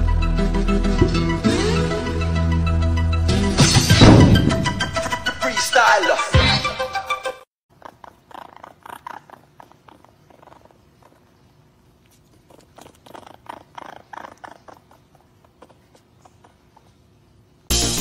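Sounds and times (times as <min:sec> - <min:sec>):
loud music: 0:00.0 - 0:07.4, 0:17.7 - 0:18.0
baby raccoon chittering: 0:07.7 - 0:17.7.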